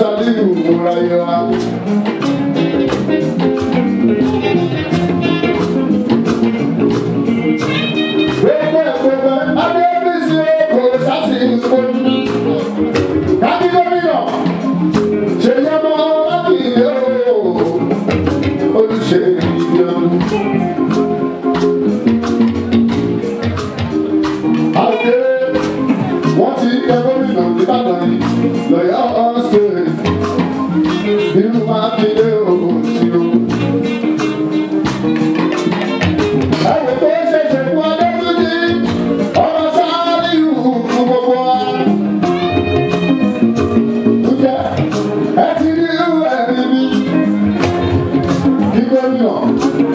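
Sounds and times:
man singing into a microphone: 0:00.0 - 0:01.8, 0:07.6 - 0:14.6, 0:15.3 - 0:21.0, 0:24.7 - 0:33.8, 0:36.5 - 0:43.2, 0:44.0 - 0:49.9
band playing: 0:00.0 - 0:49.9
drum strokes: 0:00.0 - 0:49.9.

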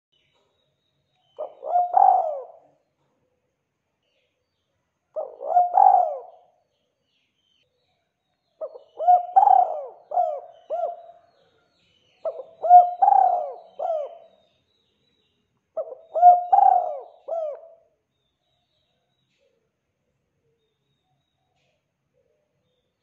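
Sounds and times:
dove cooing: 0:01.4 - 0:02.8, 0:05.2 - 0:06.5, 0:08.6 - 0:11.2, 0:12.2 - 0:14.3, 0:15.8 - 0:17.8.

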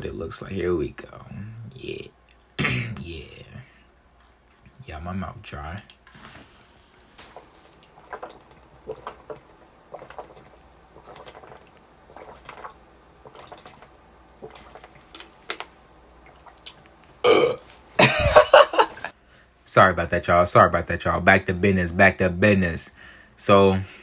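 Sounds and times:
person coughing: 0:02.6 - 0:03.0, 0:17.2 - 0:18.8
person swallowing water: 0:07.2 - 0:17.6.

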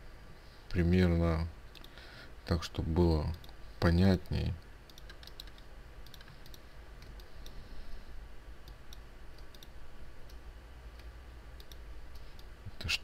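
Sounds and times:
faint low hum: 0:00.0 - 0:13.0
computer mouse clicks: 0:04.2 - 0:07.6, 0:08.6 - 0:12.5.

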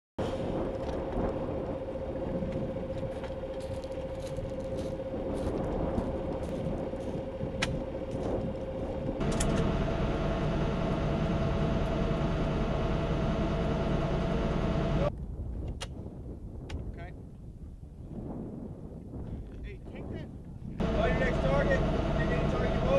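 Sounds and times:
vehicle engine running: 0:00.3 - 0:15.1, 0:20.8 - 0:22.9.

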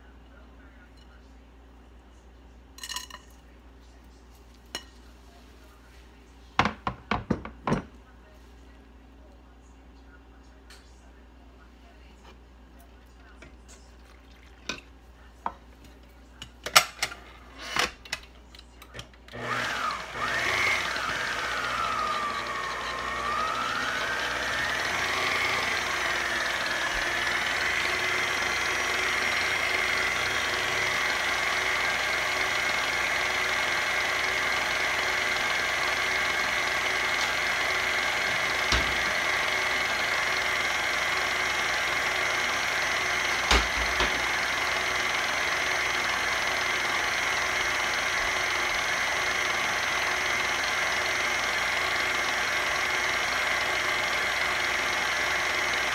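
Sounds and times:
electric mixer motor whine: 0:19.3 - 0:55.9.

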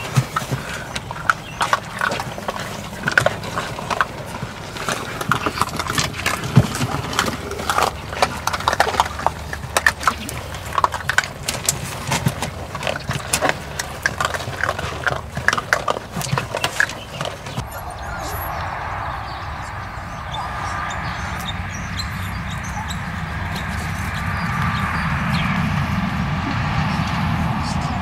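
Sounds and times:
kibble and paws tapping on boards: 0:00.0 - 0:17.6
puppies chewing kibble: 0:00.0 - 0:28.0.

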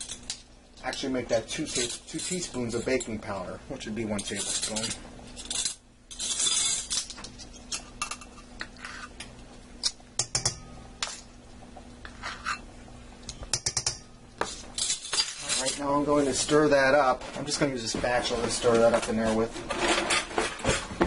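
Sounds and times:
faint steady hum: 0:00.0 - 0:21.0
spoon scraping bowl: 0:12.1 - 0:12.7.

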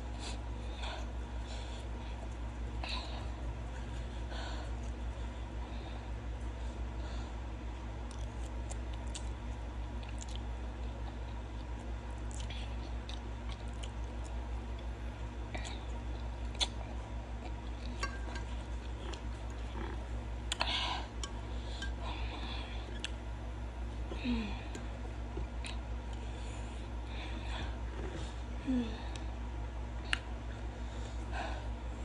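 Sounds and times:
steady low hum: 0:00.0 - 0:32.0
person chewing and slurping noodles: 0:17.4 - 0:23.2.

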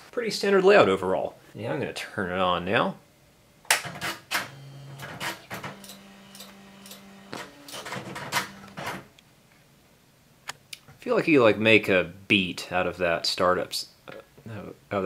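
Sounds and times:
typewriter motor whirring: 0:03.9 - 0:09.0.

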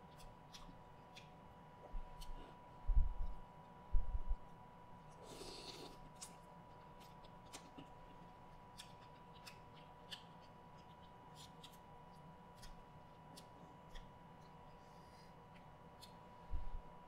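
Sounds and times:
soft mouth sounds eating: 0:00.0 - 0:01.4, 0:05.0 - 0:16.5.

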